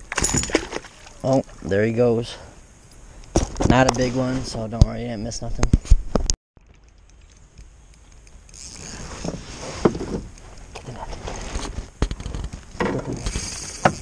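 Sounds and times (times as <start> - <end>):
gear scraping in canoe: 8.6 - 14.0.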